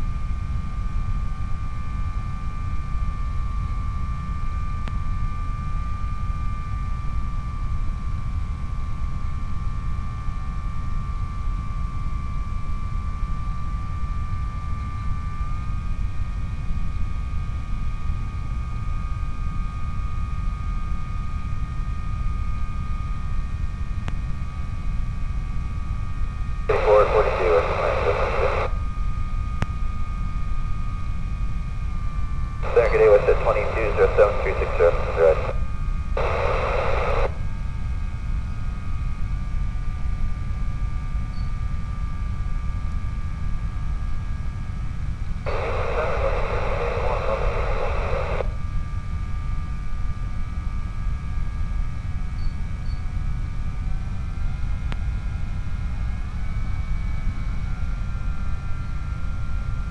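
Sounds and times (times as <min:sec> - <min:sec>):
low rumble with faint hum: 0:26.7 - 0:28.8, 0:32.6 - 0:37.4, 0:45.5 - 0:48.6
radio static hiss: 0:26.7 - 0:28.8, 0:32.6 - 0:35.6, 0:36.2 - 0:37.4, 0:45.5 - 0:48.6.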